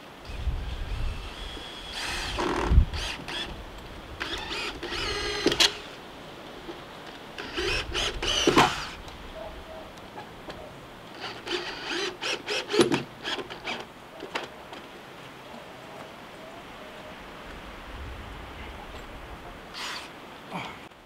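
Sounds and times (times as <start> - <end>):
cordless drill driving screws: 1.1 - 3.6, 4.2 - 6.0, 7.4 - 9.0, 11.2 - 13.9.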